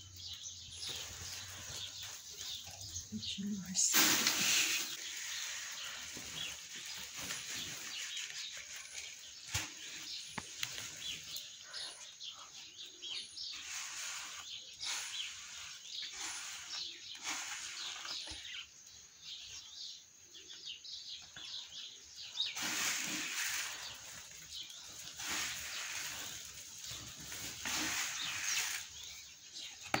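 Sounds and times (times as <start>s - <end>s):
small birds chirping: 0.0s - 30.0s
grain pouring from plastic bucket: 3.9s - 11.4s, 13.3s - 18.6s, 22.4s - 29.5s.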